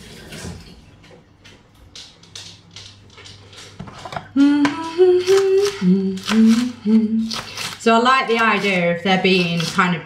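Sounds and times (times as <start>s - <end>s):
woman humming: 4.2s - 7.5s.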